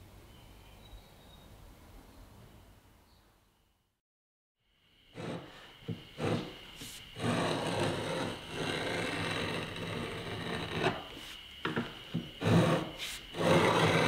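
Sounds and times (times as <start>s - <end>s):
board scraping over bench: 5.2s - 14.0s
wooden knocks: 11.6s - 12.6s.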